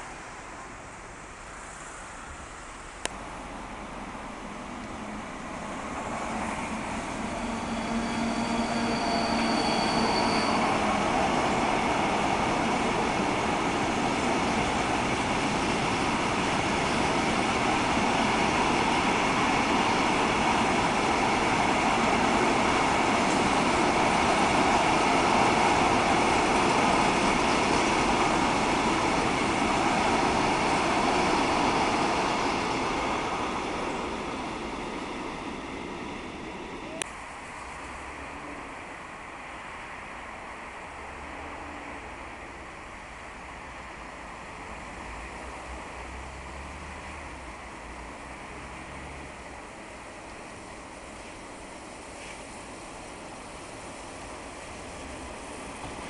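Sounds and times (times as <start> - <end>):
freight train rumbling past: 0.0 - 56.0
faint high whine: 7.0 - 11.0.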